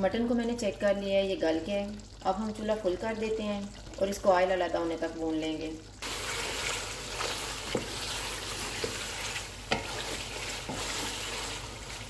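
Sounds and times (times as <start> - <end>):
meat sizzling in oil: 6.0 - 12.0
wooden spatula scraping pan: 6.2 - 12.0
spatula tapping pan: 7.2 - 11.3.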